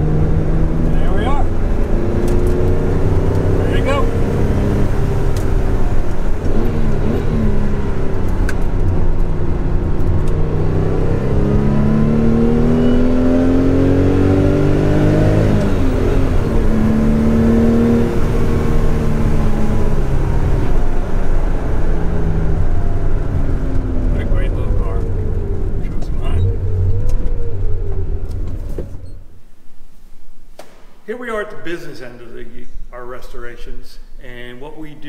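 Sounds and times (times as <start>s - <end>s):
car engine revving: 0.0s - 29.2s.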